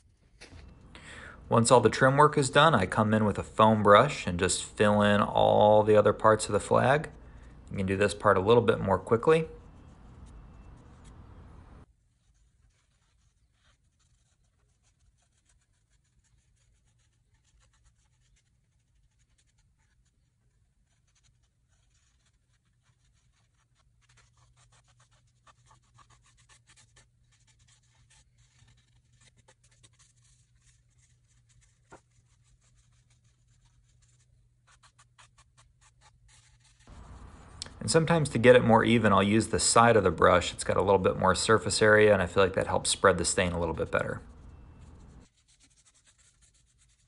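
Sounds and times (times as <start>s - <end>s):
foam brush rubbing on wood: 11.9s - 47.0s.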